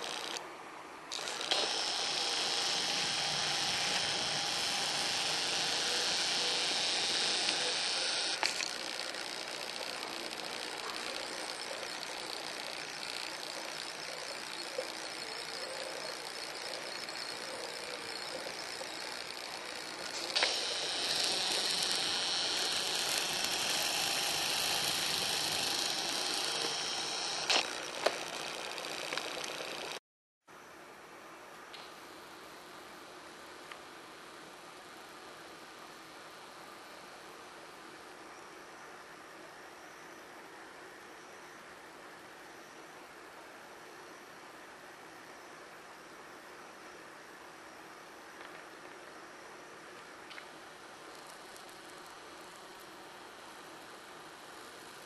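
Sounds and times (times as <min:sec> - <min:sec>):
camera zoom motor whirring: 0:00.0 - 0:00.4, 0:01.1 - 0:30.0
camera click: 0:01.1 - 0:13.9, 0:18.4 - 0:30.0.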